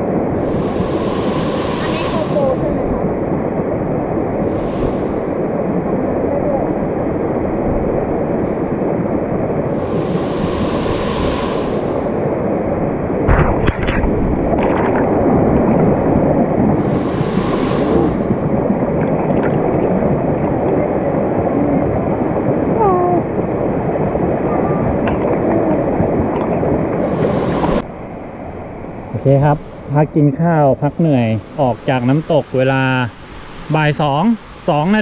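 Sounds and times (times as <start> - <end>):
waterfall rushing: 0.0 - 13.3, 15.9 - 23.1, 23.8 - 27.8.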